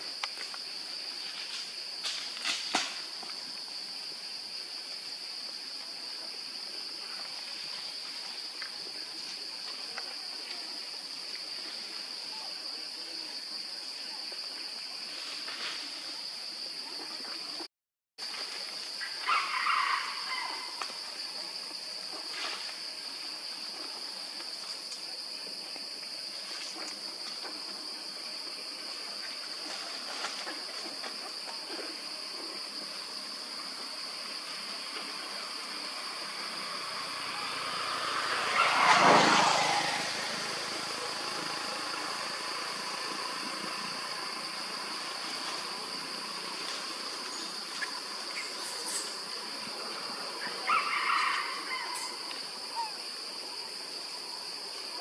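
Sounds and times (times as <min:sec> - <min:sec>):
high-pitched insect drone: 0:28.4 - 0:53.3.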